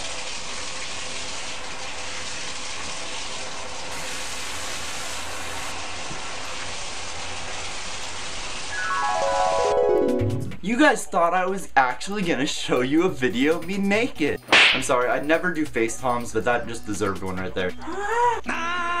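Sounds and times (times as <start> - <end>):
shower water spraying: 0.0 - 9.8.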